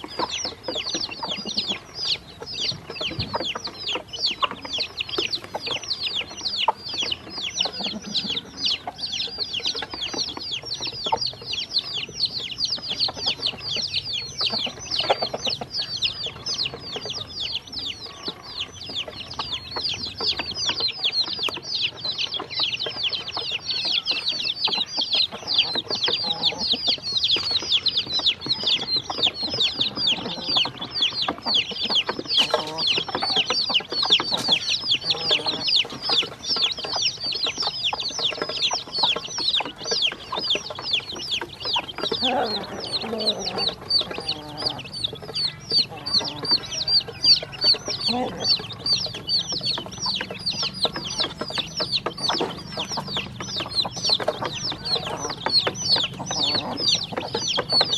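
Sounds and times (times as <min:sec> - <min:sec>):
chicks and ducklings peeping: 0:00.0 - 0:57.9.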